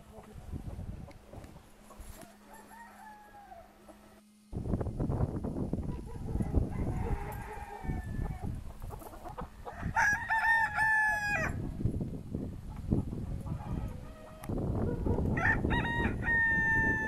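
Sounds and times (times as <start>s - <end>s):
distant rooster crow: 2.1s - 4.2s, 6.2s - 8.5s, 9.7s - 11.6s, 15.3s - 17.0s
rooster crowing: 2.2s - 4.2s, 6.2s - 8.5s, 9.7s - 11.6s, 15.3s - 17.0s.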